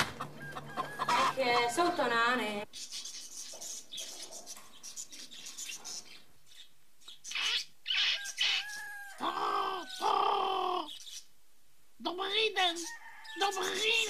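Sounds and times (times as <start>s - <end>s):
chickens squawking: 0.0s - 4.5s, 7.1s - 11.4s, 12.5s - 14.0s
rooster crowing: 0.1s - 1.8s, 7.9s - 10.9s, 12.8s - 14.0s.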